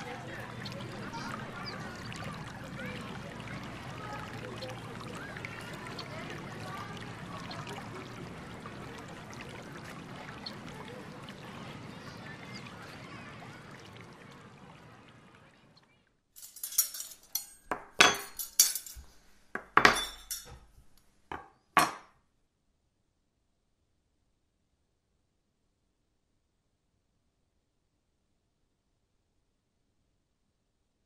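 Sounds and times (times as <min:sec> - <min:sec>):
glassware and dishes clattering: 0:16.4 - 0:22.0.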